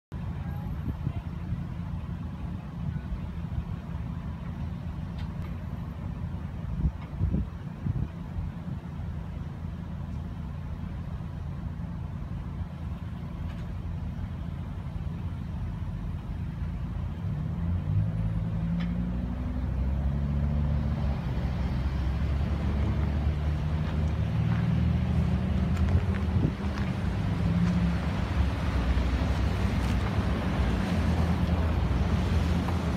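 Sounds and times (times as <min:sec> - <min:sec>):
cars driving past: 0:15.2 - 0:32.9.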